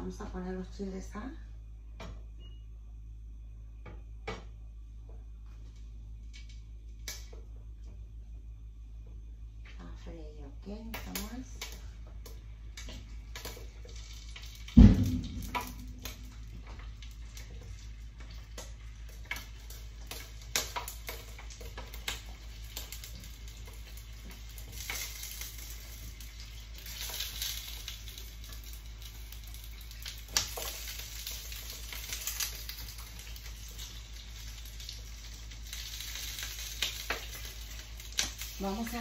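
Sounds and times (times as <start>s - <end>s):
chiles sizzling in hot oil: 5.6s - 7.5s, 10.0s - 39.0s.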